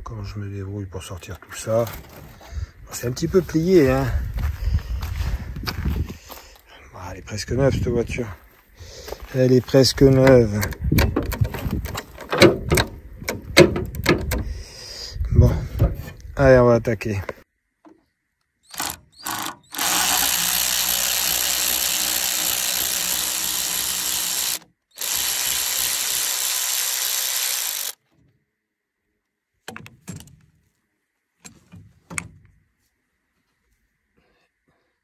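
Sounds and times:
electric ratchet wrench whirring: 18.7 - 28.0.

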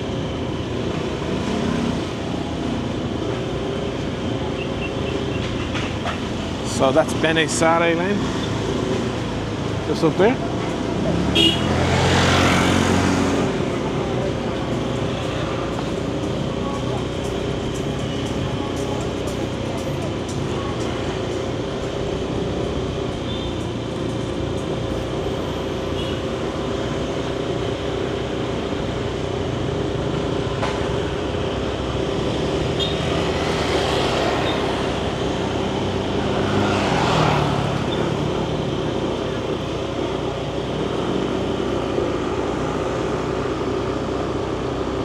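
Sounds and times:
road and wind noise: 0.0 - 45.0
street traffic: 0.0 - 45.0.

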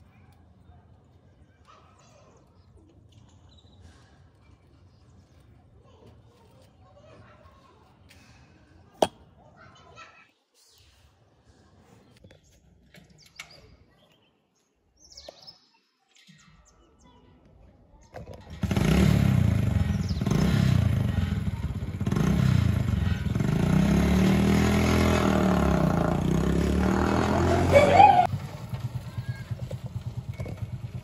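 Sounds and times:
motorcycle engine revving: 18.5 - 31.0.

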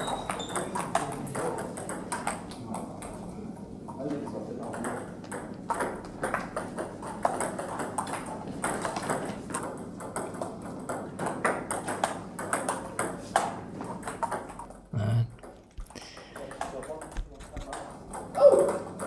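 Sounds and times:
distant table tennis ball clicks: 4.7 - 14.8.

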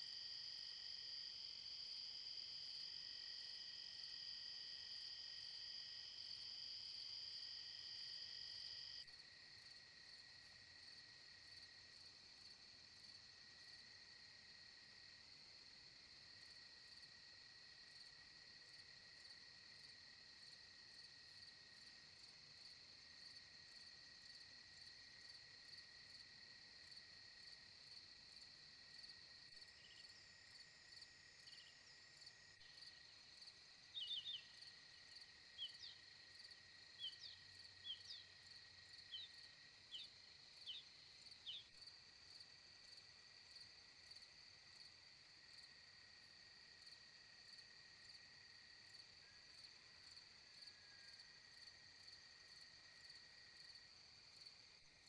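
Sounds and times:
insects high-pitched trill: 29.0 - 45.0
insect short quick chirps: 33.9 - 34.7, 35.6 - 36.0, 37.0 - 38.3, 39.0 - 41.7.

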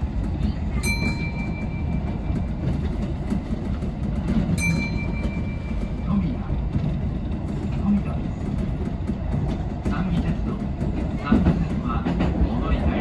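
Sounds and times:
train wheels rumbling on track: 0.0 - 13.0
high ringing tone: 4.6 - 6.1.

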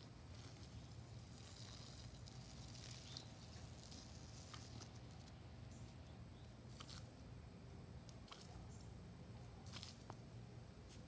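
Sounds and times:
hose spray hissing on grass: 0.2 - 4.9.

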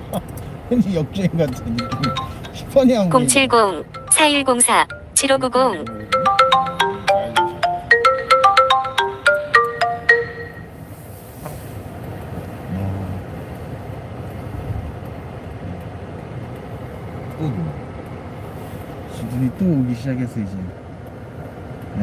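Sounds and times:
low rumble inside car cabin: 0.0 - 22.0
marimba phone ringtone: 1.4 - 10.7.

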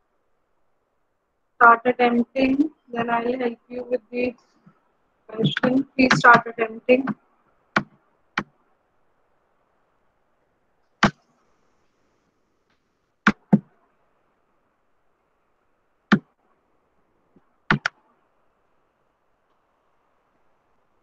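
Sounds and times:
faint background noise: 0.0 - 21.0
sharp taps near microphone: 12.7 - 13.7.

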